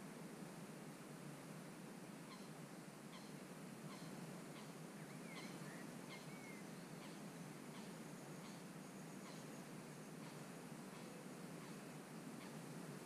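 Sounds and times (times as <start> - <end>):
steady low outdoor hiss: 0.0 - 13.0
faint bird calls: 2.2 - 13.0.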